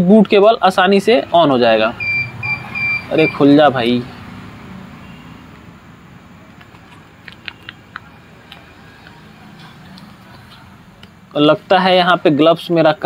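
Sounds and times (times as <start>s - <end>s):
sharp clicks: 6.4s - 9.2s
package handling noise: 6.5s - 9.3s.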